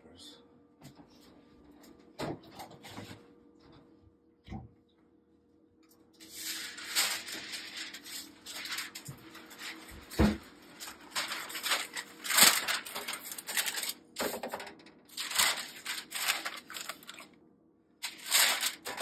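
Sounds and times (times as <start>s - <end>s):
parchment paper crinkling: 6.2s - 17.4s, 18.0s - 19.0s.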